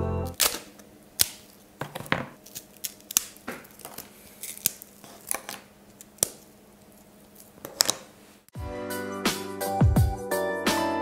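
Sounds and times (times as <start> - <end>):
toffee snapping and crunching: 0.3 - 8.1.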